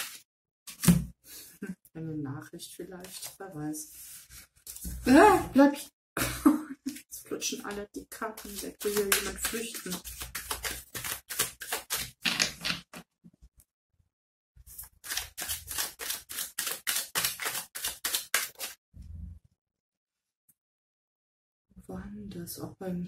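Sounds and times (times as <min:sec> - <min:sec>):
cards shuffled by hand: 0:08.4 - 0:13.0, 0:14.8 - 0:18.8.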